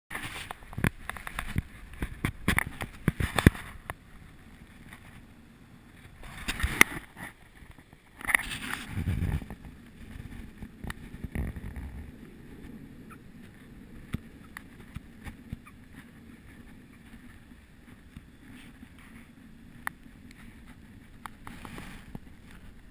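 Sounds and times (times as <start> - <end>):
wind buffeting microphone: 0.1 - 22.9.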